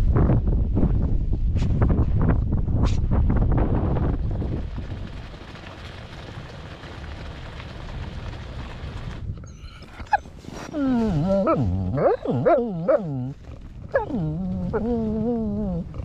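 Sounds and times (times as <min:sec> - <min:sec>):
wind noise: 0:00.0 - 0:16.0
dog howling yowls: 0:13.9 - 0:15.9.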